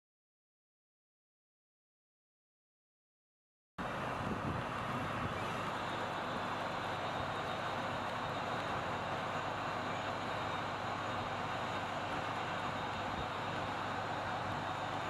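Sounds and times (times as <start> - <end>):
road and wind noise: 3.8 - 15.0.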